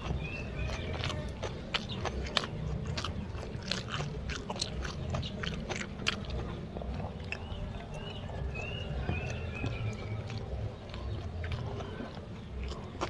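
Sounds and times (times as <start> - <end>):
man chewing food: 0.0 - 13.0.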